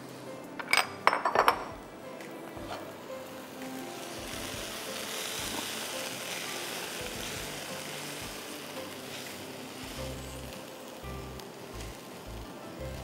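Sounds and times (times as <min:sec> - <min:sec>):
soft background music: 0:00.0 - 0:13.0
meat sizzling in a frying pan: 0:02.6 - 0:13.0.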